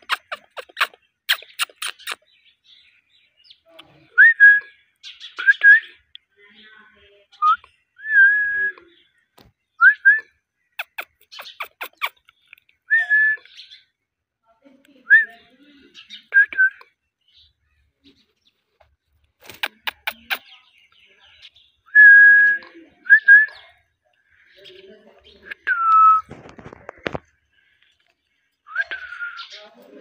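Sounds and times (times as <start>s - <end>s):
sharp clicks: 0.0s - 2.2s, 19.4s - 20.4s.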